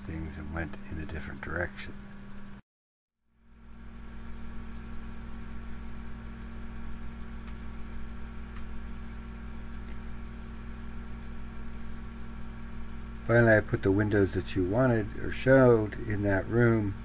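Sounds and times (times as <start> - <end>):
low electrical hum with hiss: 0.0 - 2.6, 3.4 - 17.0.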